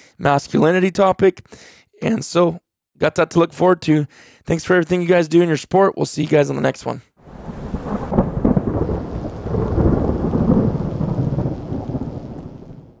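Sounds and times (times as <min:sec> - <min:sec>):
rain: 0:07.2 - 0:13.0
thunder rumbling: 0:07.2 - 0:13.0.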